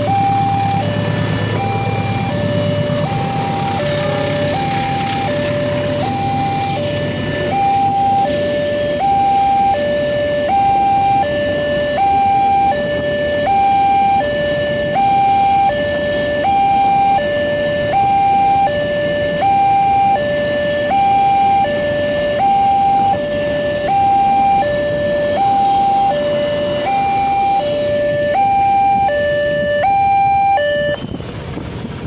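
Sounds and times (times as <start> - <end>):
freight train passing: 0.0 - 10.4, 23.2 - 30.1, 31.0 - 32.0
level crossing two-tone alarm: 0.0 - 31.1.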